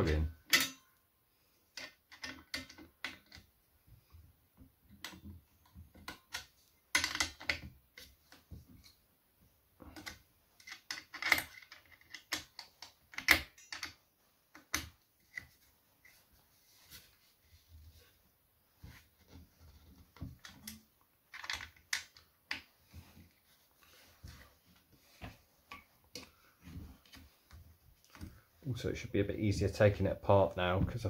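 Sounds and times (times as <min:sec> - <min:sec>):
metal parts clicking and rattling: 0:00.4 - 0:00.9, 0:01.7 - 0:03.5, 0:06.0 - 0:07.7, 0:09.9 - 0:15.4, 0:20.4 - 0:22.6.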